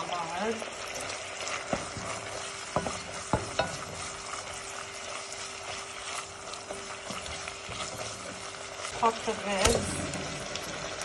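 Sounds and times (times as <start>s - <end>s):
meat sizzling in pan: 0.0s - 11.0s
wooden spoon knocking pan: 1.6s - 4.1s.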